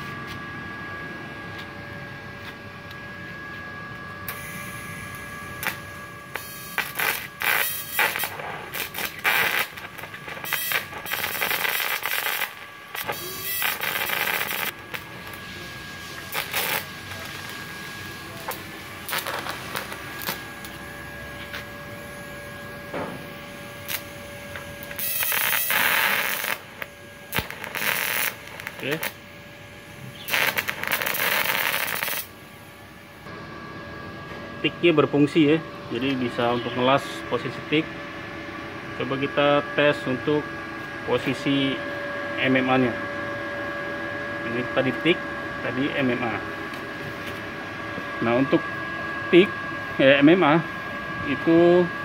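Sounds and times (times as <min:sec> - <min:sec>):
faint steady whine: 0:00.0 - 0:52.0
welding arc hissing crackle: 0:04.3 - 0:22.6, 0:23.2 - 0:33.2.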